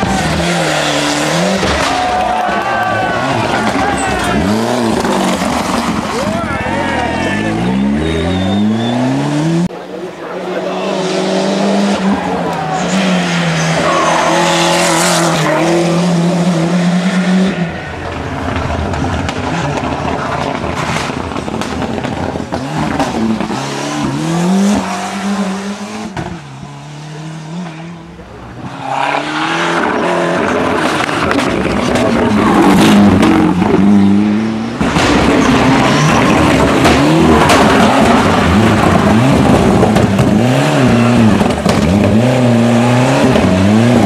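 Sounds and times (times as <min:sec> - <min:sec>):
rally car engine at racing revs: 0:00.0 - 0:44.0.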